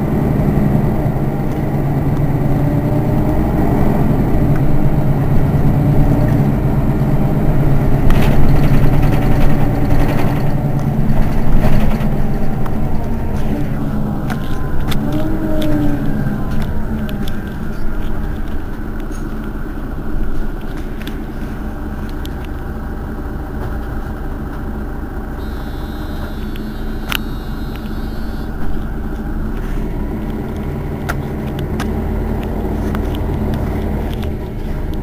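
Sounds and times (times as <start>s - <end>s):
bus engine idling: 0.0s - 35.0s
sharp clicks: 26.2s - 28.9s.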